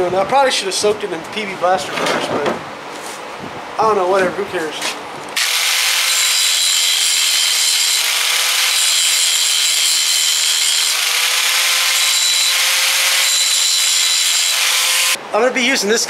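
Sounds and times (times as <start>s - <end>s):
angle grinder grinding metal: 5.4s - 15.2s.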